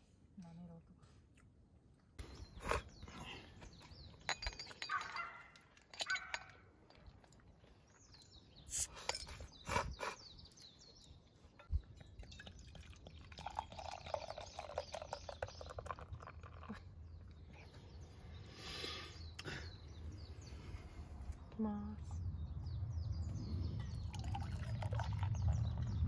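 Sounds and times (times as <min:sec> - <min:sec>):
beer pouring and foaming: 0:11.8 - 0:16.9, 0:24.0 - 0:25.8.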